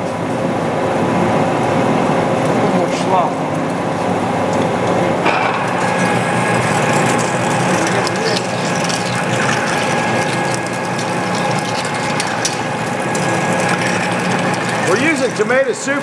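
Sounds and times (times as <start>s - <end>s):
lathe running: 5.3s - 16.0s.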